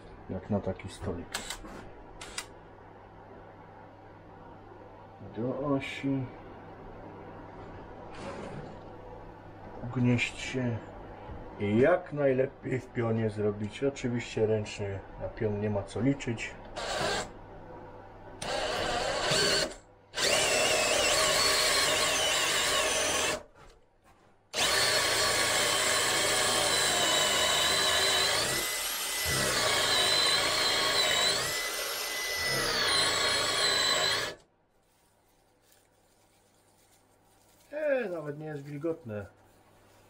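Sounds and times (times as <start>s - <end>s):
cordless drill boring into wood: 16.8s - 17.3s, 18.4s - 23.4s, 24.5s - 34.4s.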